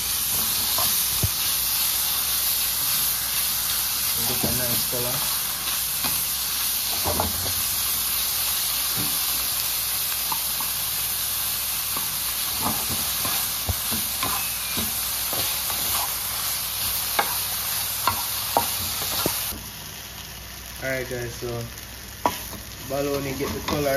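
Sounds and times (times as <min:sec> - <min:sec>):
meat sizzling in a skillet: 0:00.0 - 0:23.9
wooden spatula scraping pan: 0:12.0 - 0:16.3, 0:22.3 - 0:23.9.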